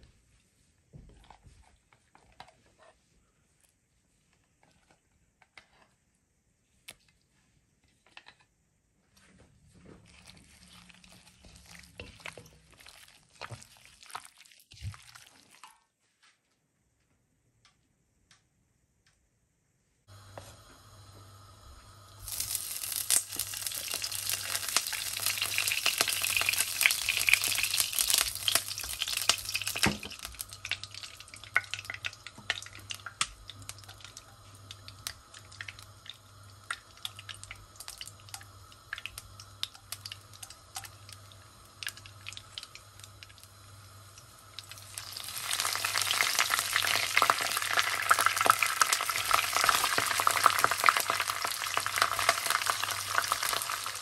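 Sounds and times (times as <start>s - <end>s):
oil sizzling in a pan: 20.1s - 54.0s.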